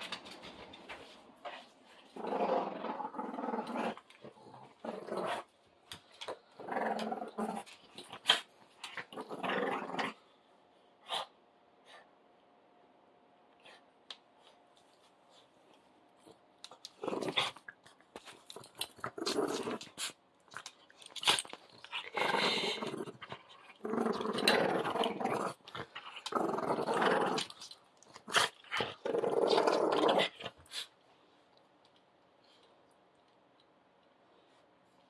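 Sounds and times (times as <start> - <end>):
dogs growling in play: 1.5 - 5.5, 6.2 - 10.3, 16.2 - 20.2, 21.1 - 30.9.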